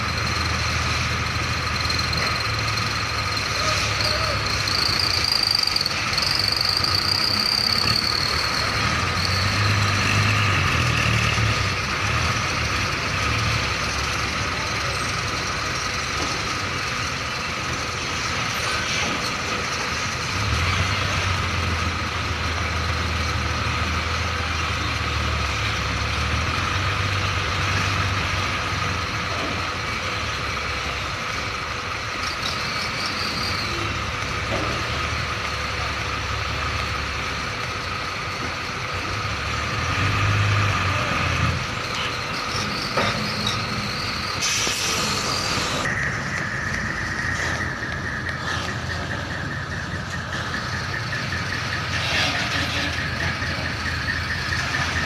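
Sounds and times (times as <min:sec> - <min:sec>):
truck diesel engine under load: 0:00.0 - 0:55.0
short high squeal: 0:03.5 - 0:09.7, 0:42.0 - 0:45.9, 0:51.7 - 0:53.6.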